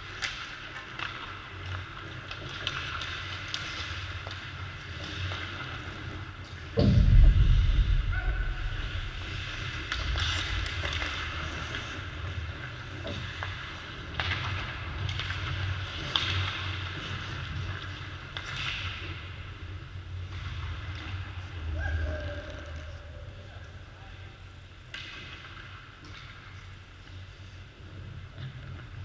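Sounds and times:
hockey sticks and pucks clacking: 0.0s - 6.8s, 9.2s - 21.7s, 24.8s - 29.0s
heavy low thump: 6.8s - 10.7s
low rumble: 6.8s - 12.4s.

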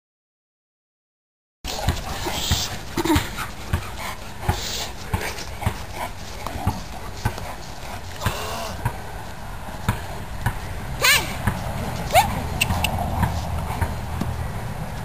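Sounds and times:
dogs panting: 1.7s - 8.3s, 11.6s - 14.6s.

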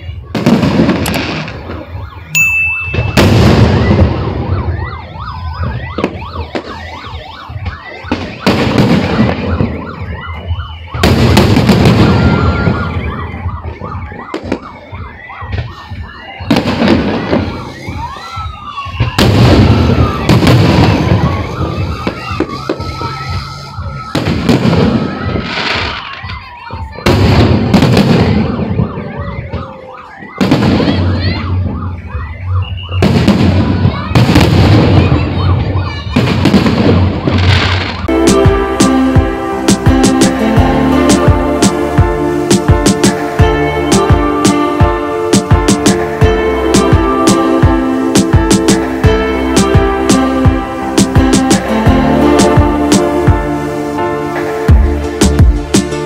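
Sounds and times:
firework crackling: 0.1s - 14.8s, 15.4s - 56.0s
firework whistling: 0.3s - 44.7s
firework shells booming: 2.8s - 4.5s.

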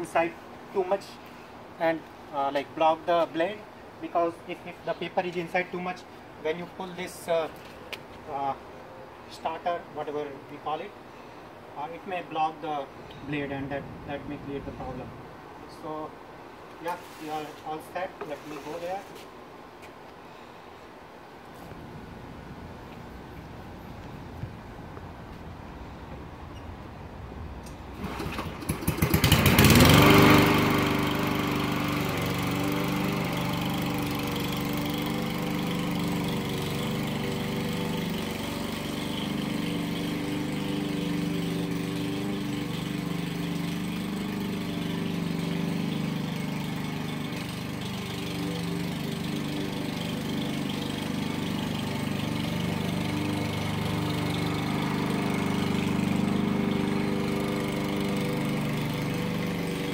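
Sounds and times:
lawn mower engine: 16.9s - 19.3s, 27.6s - 59.9s.

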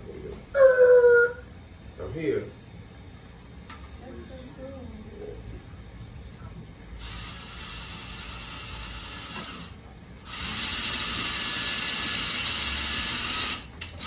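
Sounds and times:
cordless drill against a wall: 7.0s - 14.0s.

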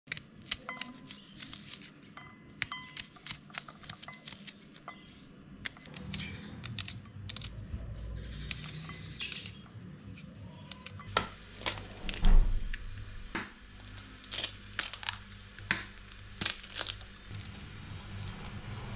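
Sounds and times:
knife cutting onion: 0.1s - 7.8s, 8.4s - 12.2s
low rumble: 11.4s - 14.4s, 15.5s - 18.9s.

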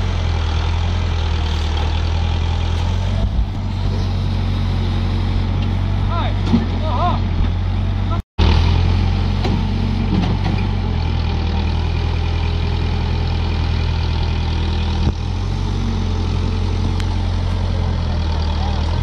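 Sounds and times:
diesel engine droning: 0.0s - 19.0s.

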